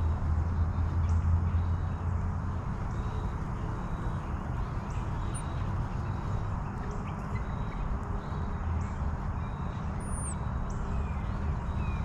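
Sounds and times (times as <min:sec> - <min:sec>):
faint bird chirps: 0:02.9 - 0:12.0.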